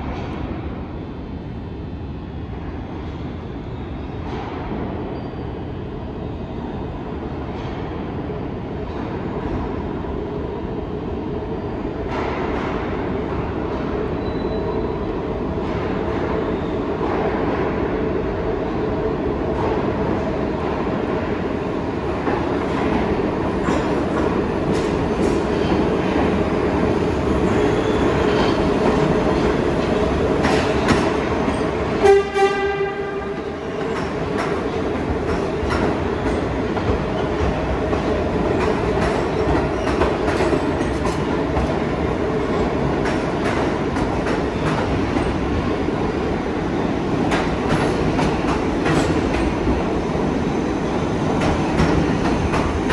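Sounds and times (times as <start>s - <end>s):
subway train rumbling: 0.0s - 52.9s
short train horn: 32.0s - 33.5s.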